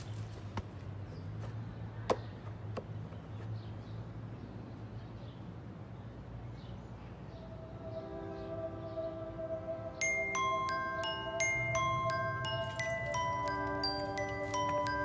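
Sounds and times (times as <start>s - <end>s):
chime-like mallet percussion music: 10.0s - 15.0s.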